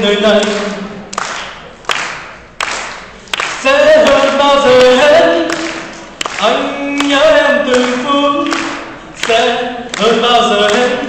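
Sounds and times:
man singing unaccompanied: 0.0s - 1.0s, 3.5s - 11.0s.

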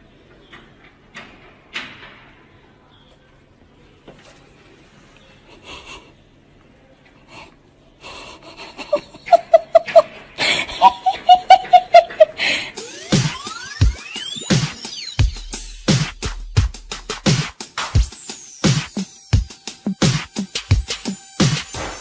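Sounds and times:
wheezy gasping breaths: 7.2s - 9.1s, 10.3s - 10.9s, 12.3s - 12.9s
person laughing hard: 8.4s - 12.8s.

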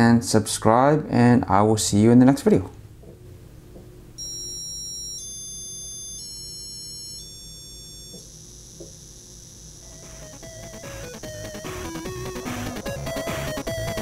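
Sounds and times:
faint steady high tone: 4.2s - 13.0s
high electronic beeps: 4.2s - 14.0s.

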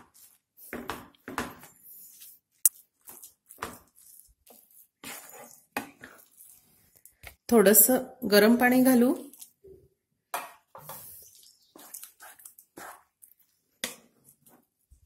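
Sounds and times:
spatula scraping a pan: 0.0s - 7.1s, 10.6s - 14.7s.

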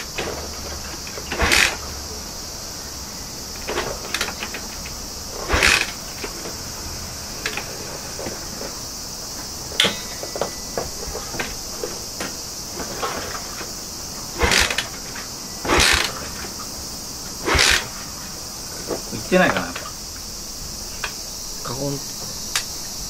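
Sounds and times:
motorcycle engine kicked over: 0.0s - 2.0s, 3.6s - 6.6s, 9.7s - 13.7s, 14.3s - 16.6s, 17.4s - 18.0s
insects chirring: 0.0s - 23.0s.

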